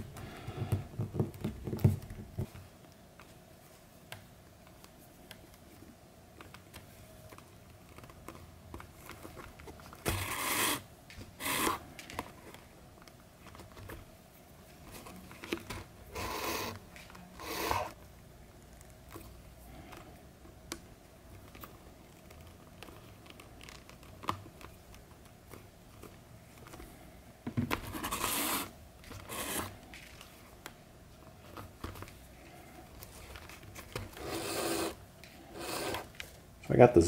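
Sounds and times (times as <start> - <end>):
thread rasping through leather: 28.0 - 29.7.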